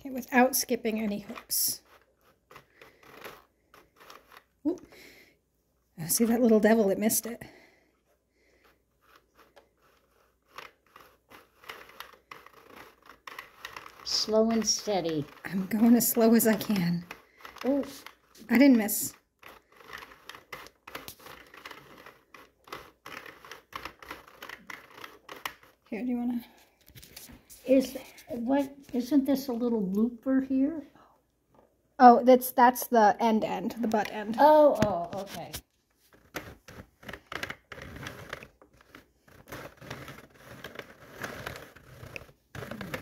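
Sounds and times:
knitting machine needles clicking: 0:09.0 - 0:25.8.

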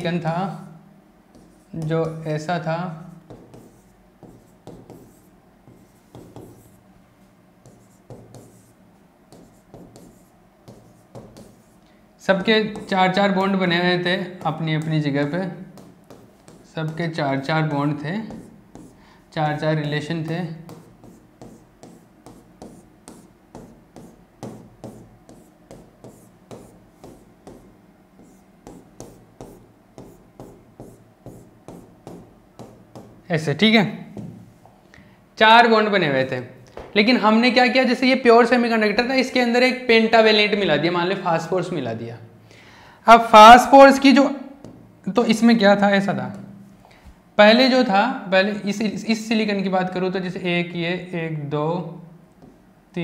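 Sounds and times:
stylus scratching on a screen: 0:03.2 - 0:06.8, 0:07.6 - 0:11.8, 0:12.5 - 0:13.5, 0:15.6 - 0:17.2, 0:18.2 - 0:19.7, 0:20.3 - 0:33.1.

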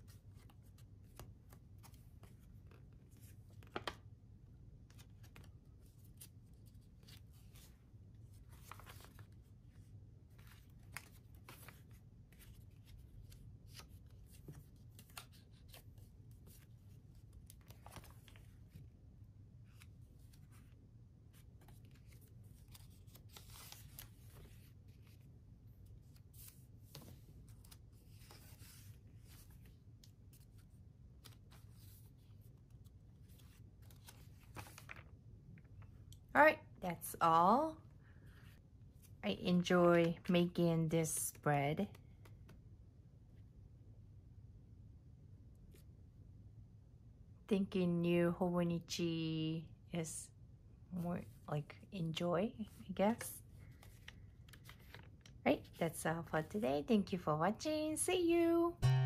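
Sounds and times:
paper pages rustling: 0:00.0 - 0:04.1, 0:04.8 - 0:18.9, 0:19.6 - 0:36.0, 0:52.6 - 0:55.8
low steady hum: 0:00.0 - 0:59.0.

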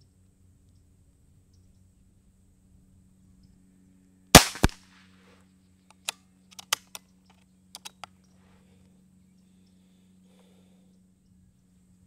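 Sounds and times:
air pistol shot cracking: 0:04.4 - 0:04.8
metallic clicks of pistol action: 0:05.9 - 0:07.0, 0:07.8 - 0:08.1.

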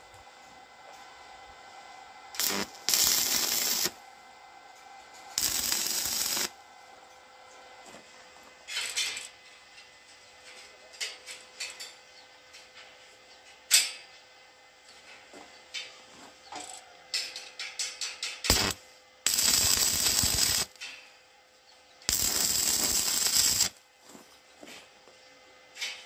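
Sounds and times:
arc welding crackle: 0:02.4 - 0:04.0, 0:05.3 - 0:06.6, 0:17.8 - 0:20.9, 0:22.1 - 0:23.8.

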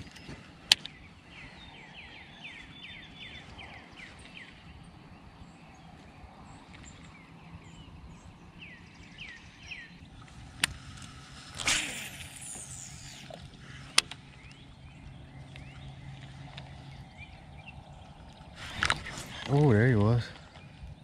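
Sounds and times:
birds chirping: 0:00.0 - 0:21.0
low steady hum: 0:00.0 - 0:21.0
fishing line whooshing off reel: 0:10.4 - 0:14.2
fishing reel click: 0:10.6 - 0:13.4.

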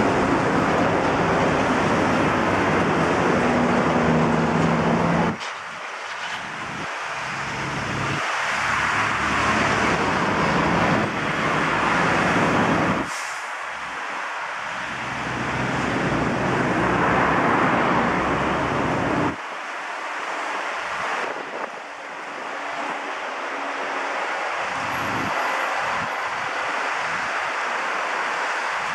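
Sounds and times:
road traffic passing: 0:00.0 - 0:28.9.

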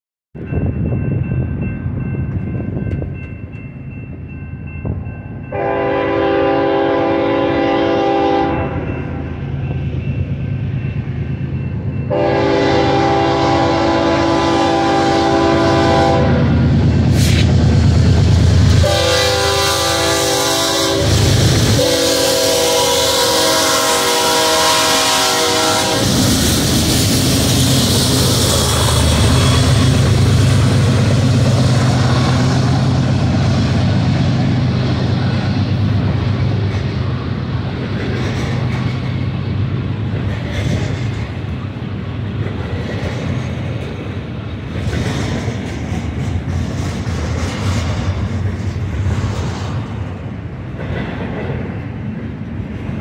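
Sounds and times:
diesel locomotive rumble: 0:00.4 - 0:53.0
train air horn blasts: 0:05.5 - 0:09.2, 0:12.1 - 0:16.6, 0:18.7 - 0:26.4.

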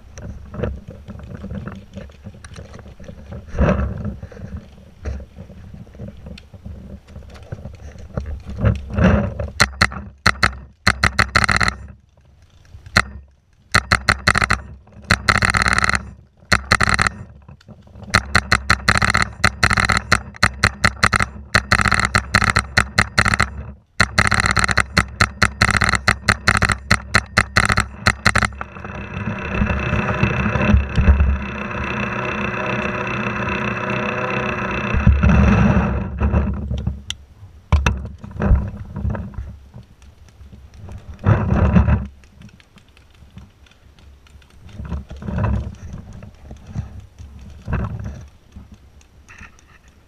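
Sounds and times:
steady rushing noise: 0:00.0 - 0:50.0
paintball marker firing: 0:09.6 - 0:11.9, 0:12.9 - 0:17.3, 0:18.1 - 0:28.7.

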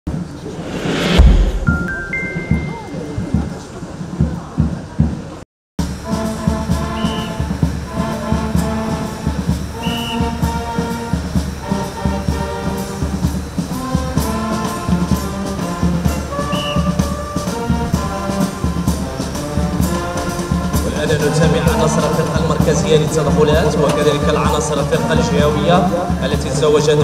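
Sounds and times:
brass band with drums: 0:00.2 - 0:27.0
short high tones: 0:01.2 - 0:03.2.

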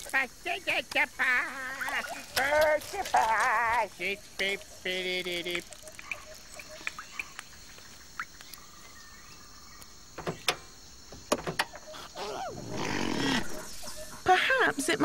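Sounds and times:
insect drone: 0:00.0 - 0:15.0
bird chirps: 0:03.9 - 0:10.5, 0:11.7 - 0:15.0.

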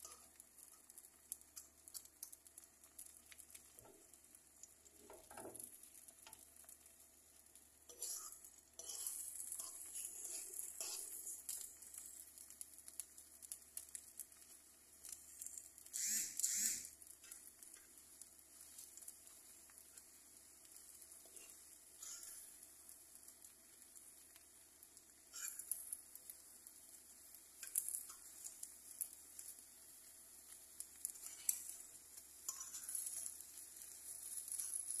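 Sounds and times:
eggs sizzling in frying pan: 0:00.0 - 0:35.0
fork scraping pan: 0:07.9 - 0:11.6, 0:25.3 - 0:25.8, 0:32.5 - 0:33.4.

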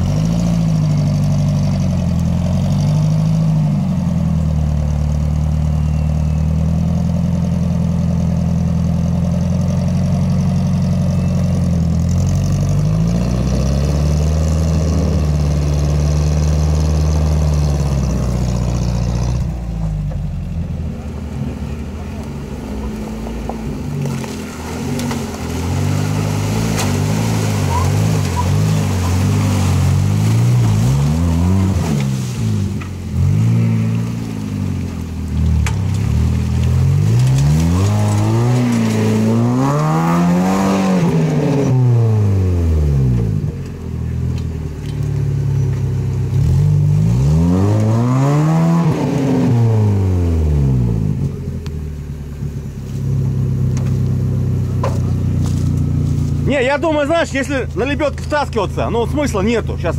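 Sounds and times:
off-road vehicle engine revving: 0:00.0 - 0:59.9.

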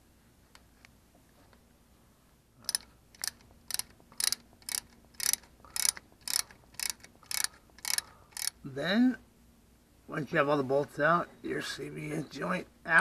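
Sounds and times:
ratchet wrench clicking: 0:02.6 - 0:08.6.

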